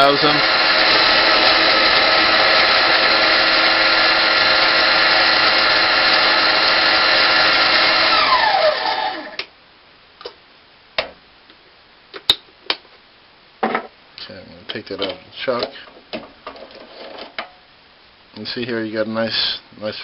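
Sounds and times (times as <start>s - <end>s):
lathe motor whine: 0.0s - 9.4s.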